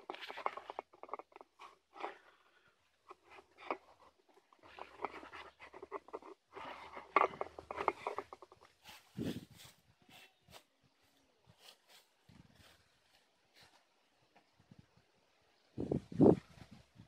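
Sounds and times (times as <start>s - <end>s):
scraping and scuffing hand work: 0.0s - 10.8s.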